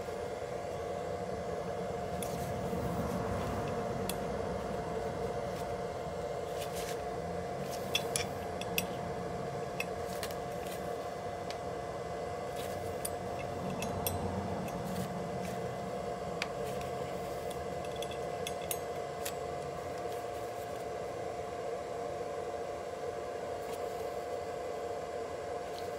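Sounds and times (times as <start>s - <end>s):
steady background hum: 0.0s - 25.9s
metallic clicks of tools: 13.0s - 14.9s, 16.8s - 19.4s.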